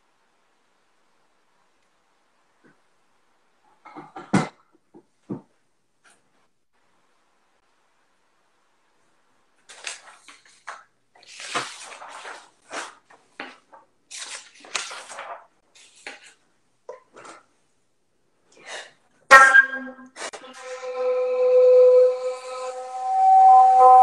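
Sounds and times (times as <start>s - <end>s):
flute note: 19.3s - 24.0s.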